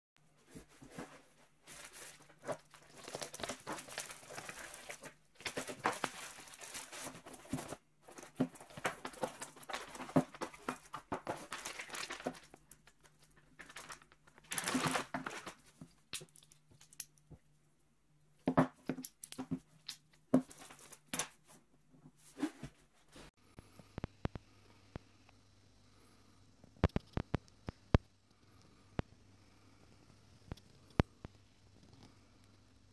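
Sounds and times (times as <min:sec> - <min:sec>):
plastic packaging tearing and crinkling: 0:01.8 - 0:07.6, 0:08.2 - 0:17.0.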